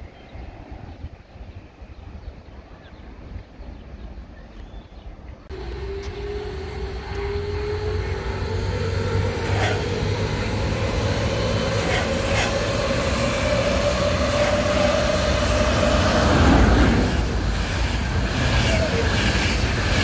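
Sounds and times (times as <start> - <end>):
electric train motor whine: 5.5 - 20.0
locomotive passing with heavy rumble: 5.5 - 20.0.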